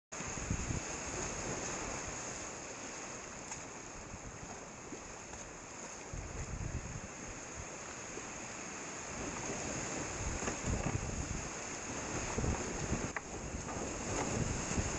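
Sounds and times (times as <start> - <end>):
low rumbling bumps on microphone: 10.0 - 11.4.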